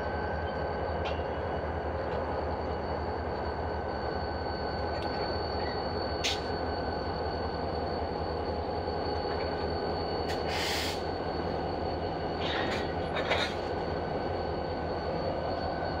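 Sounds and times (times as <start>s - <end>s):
locomotive engine rumble: 4.8s - 16.0s
air hiss: 10.3s - 11.1s.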